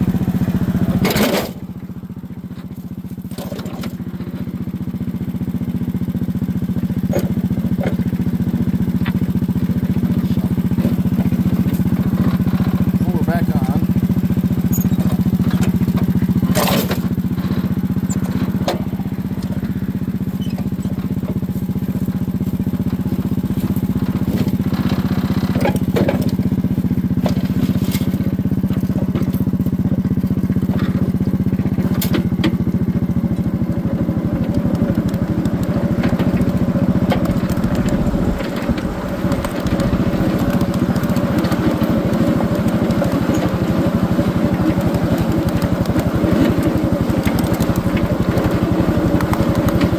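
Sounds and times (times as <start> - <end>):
small train engine running: 0.0 - 49.9
train clicks and knocks: 34.5 - 43.6.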